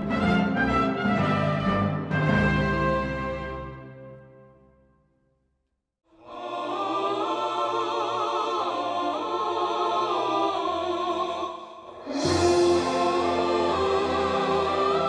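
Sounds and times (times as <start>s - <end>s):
operatic choral singing: 6.1s - 15.0s.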